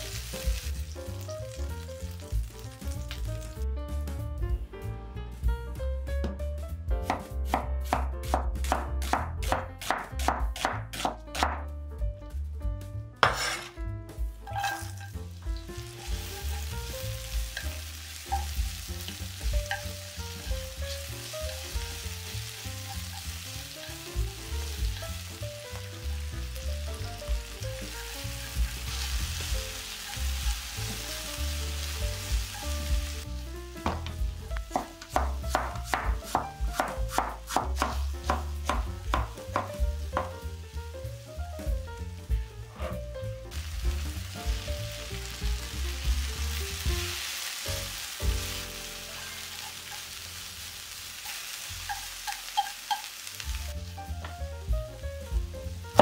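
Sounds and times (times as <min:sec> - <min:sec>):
onion sizzling in oil: 0:00.0 - 0:03.7, 0:13.2 - 0:13.7, 0:14.4 - 0:56.0
soft background music: 0:00.0 - 0:52.4, 0:53.4 - 0:56.0
cleaver chopping on wooden board: 0:07.1 - 0:11.6, 0:34.7 - 0:39.7.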